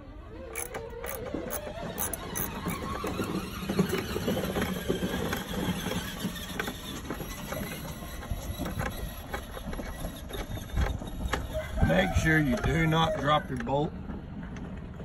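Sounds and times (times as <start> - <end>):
hand ratchet clicking: 0.5 - 3.3.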